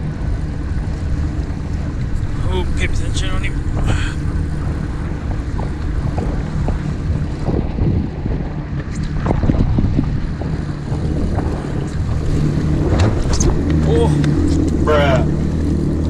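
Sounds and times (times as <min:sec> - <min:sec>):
jet ski engine idling: 0:00.0 - 0:16.0
water splashing against hull: 0:00.0 - 0:16.0
wind buffeting microphone: 0:00.0 - 0:16.0.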